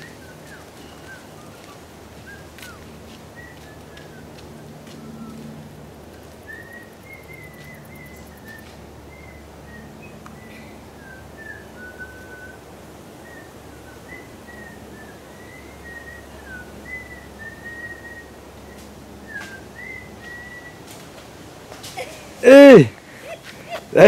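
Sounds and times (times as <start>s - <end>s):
whistled notes: 6.2s - 12.6s, 13.2s - 20.9s.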